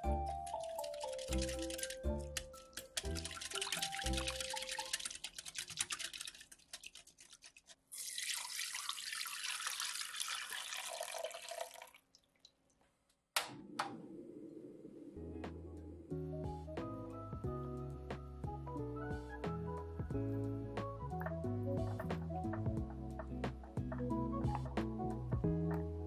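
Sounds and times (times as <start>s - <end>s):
batter pouring through strainer: 0.0s - 12.0s
whisk clinking in glass bowl: 0.1s - 7.6s.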